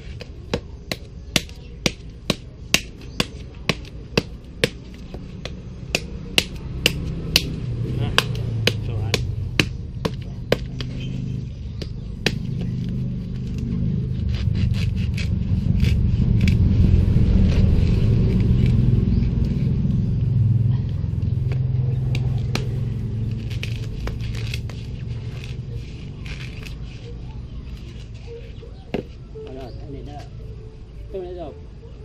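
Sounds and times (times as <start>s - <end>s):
knife striking coconut shell: 0.2s - 11.0s, 11.8s - 12.9s
low engine hum: 3.5s - 32.0s.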